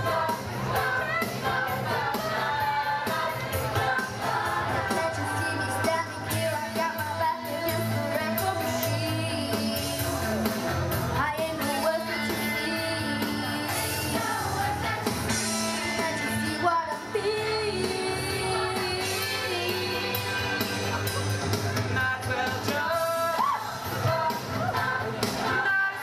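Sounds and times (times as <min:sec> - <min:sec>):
youth choir singing: 0:00.0 - 0:10.4, 0:11.5 - 0:21.0
pop backing music: 0:00.0 - 0:26.0
boy singing into microphone: 0:04.8 - 0:10.5, 0:11.2 - 0:14.2.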